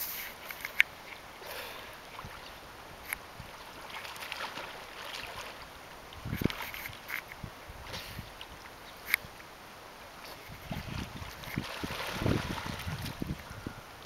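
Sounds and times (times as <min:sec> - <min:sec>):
flowing river water: 0:00.0 - 0:14.0
splashing in water: 0:03.5 - 0:08.6, 0:10.3 - 0:13.3.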